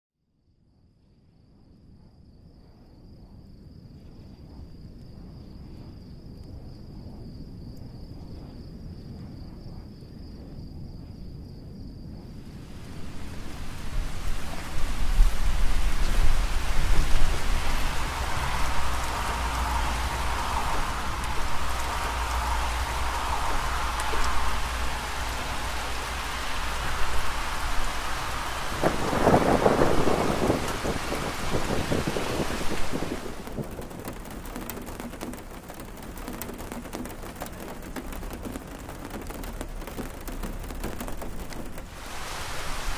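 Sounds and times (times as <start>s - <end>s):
high insect trill: 2.1s - 42.7s
thunder rumble: 3.4s - 42.9s
heavy rain falling: 12.4s - 42.9s.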